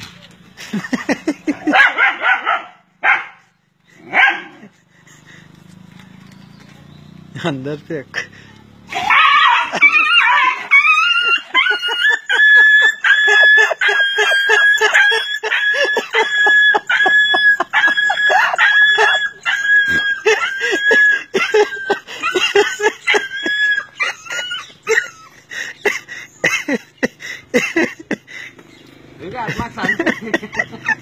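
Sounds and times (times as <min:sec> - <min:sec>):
animal screaming: 0:08.9 - 0:21.4.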